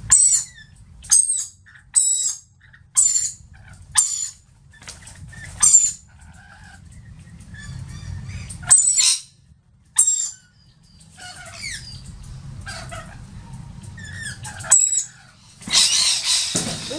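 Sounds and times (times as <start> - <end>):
lorikeets calling: 0.0 - 4.4, 5.4 - 16.9
low steady rumble: 0.0 - 16.9
young bird high squeaks: 3.0 - 3.4, 10.0 - 10.5, 14.0 - 16.9.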